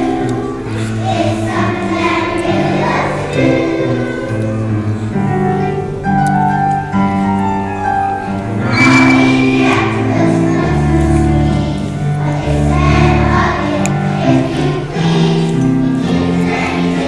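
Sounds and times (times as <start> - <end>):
children's choir singing: 0.0 - 17.0.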